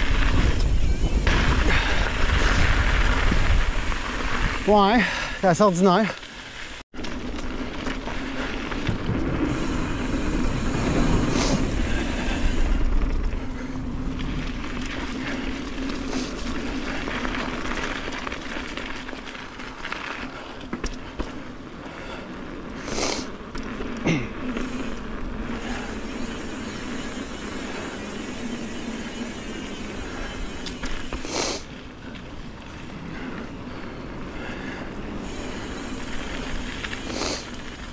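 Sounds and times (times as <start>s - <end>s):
wind on microphone: 0.0s - 4.7s
bike tyres rolling: 0.0s - 37.9s.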